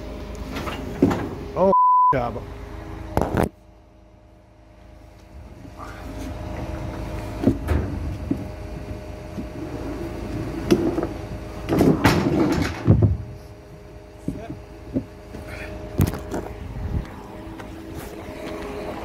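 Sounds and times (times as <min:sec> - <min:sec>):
knocks and clatters: 0:10.4 - 0:13.3
machine engine running: 0:13.3 - 0:19.0.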